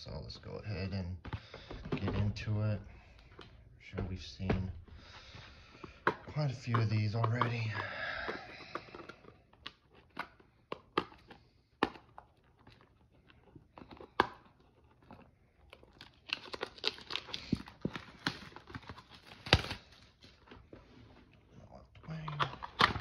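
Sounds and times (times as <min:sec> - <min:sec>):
plastic wrap crackling and tearing: 0:08.6 - 0:20.5.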